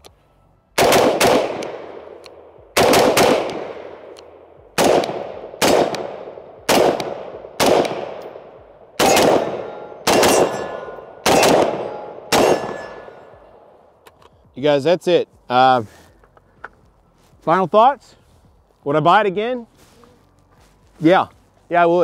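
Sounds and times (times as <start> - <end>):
rifle shots echoing: 0.8 - 13.6.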